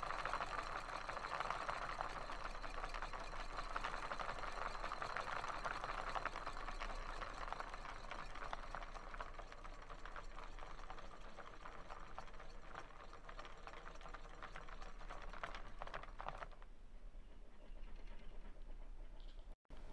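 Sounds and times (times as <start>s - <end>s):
model engine clicking clatter: 0.0s - 16.7s.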